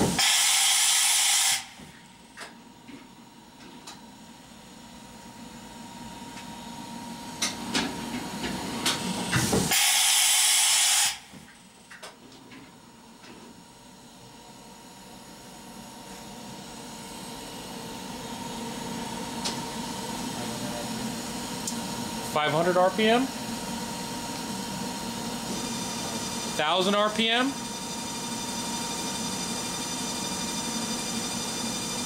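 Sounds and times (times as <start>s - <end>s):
compressed air hiss: 0.1s - 1.7s, 9.7s - 11.2s.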